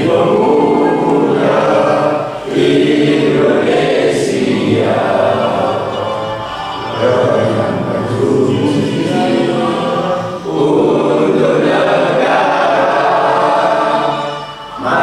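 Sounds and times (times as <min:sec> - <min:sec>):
students singing in unison: 0:00.0 - 0:15.0.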